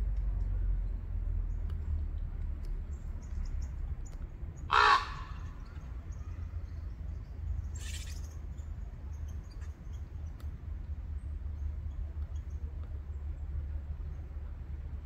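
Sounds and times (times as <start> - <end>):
small birds chipping: 0.8 - 14.3
crow cawing: 4.7 - 5.5
fainter harsh bird call: 4.7 - 5.5.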